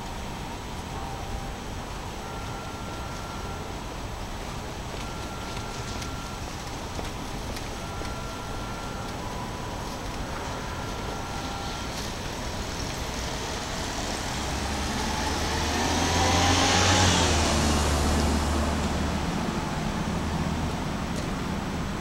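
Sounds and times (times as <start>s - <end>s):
steady traffic noise: 0.0s - 22.0s
vehicle passing by: 13.2s - 21.1s.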